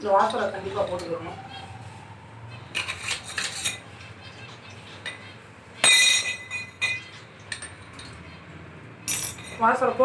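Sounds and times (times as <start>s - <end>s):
ringing metallic clang: 5.8s - 8.1s
metal parts clinking: 9.0s - 9.6s.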